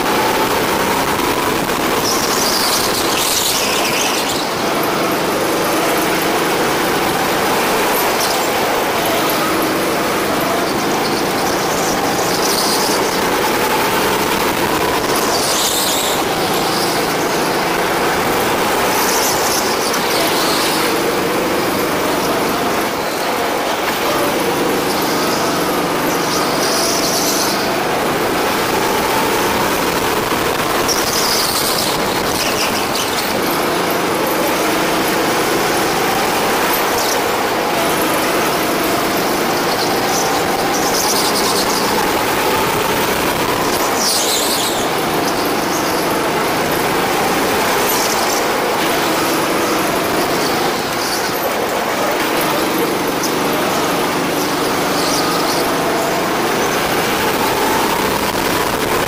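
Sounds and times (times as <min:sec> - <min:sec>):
go-kart engine revving: 0:00.0 - 0:59.0
tyre squeals: 0:00.0 - 0:59.0.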